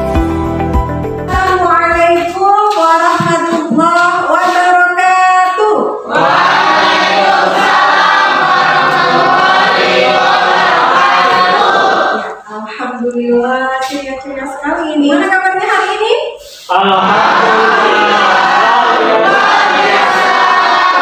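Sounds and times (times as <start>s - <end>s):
chorus of many voices: 6.0s - 12.8s, 16.6s - 21.0s.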